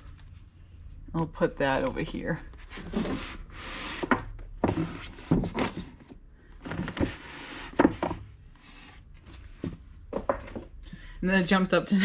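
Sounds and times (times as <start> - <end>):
book covers scraping: 2.6 - 9.7
books knocking against shelf: 9.6 - 10.7.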